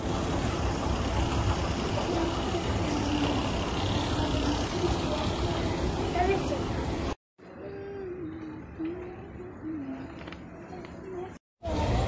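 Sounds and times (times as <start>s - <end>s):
low rumble of mall ambience: 0.0s - 12.0s.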